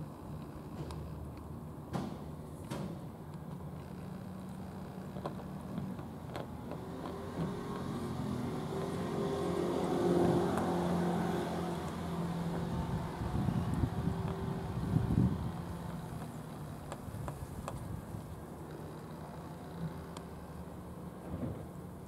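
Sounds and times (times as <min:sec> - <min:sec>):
motor engine humming: 0:03.8 - 0:21.1.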